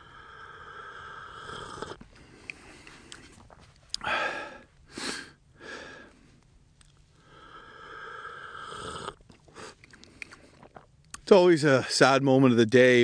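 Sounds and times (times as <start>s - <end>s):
breathy exhales: 0.0s - 3.4s, 4.0s - 6.4s, 7.2s - 10.7s
man sipping hot drink: 0.0s - 5.3s, 5.9s - 11.2s
man breathing: 0.0s - 6.5s, 7.1s - 10.7s.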